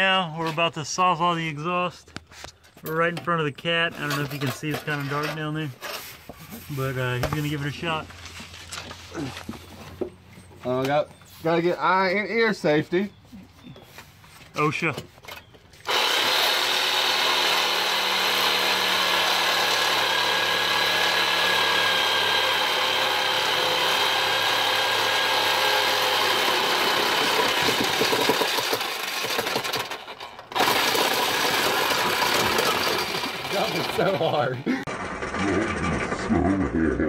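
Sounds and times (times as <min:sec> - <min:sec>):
reciprocating saw cutting metal pipe: 0:15.8 - 0:35.9.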